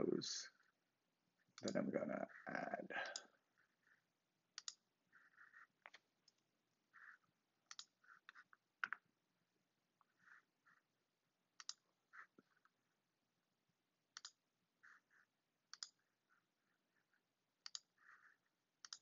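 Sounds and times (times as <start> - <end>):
computer mouse clicks: 1.6 - 1.8, 4.5 - 6.4, 7.0 - 9.0, 11.6 - 12.3, 14.1 - 15.0, 15.7 - 16.1, 17.6 - 19.0.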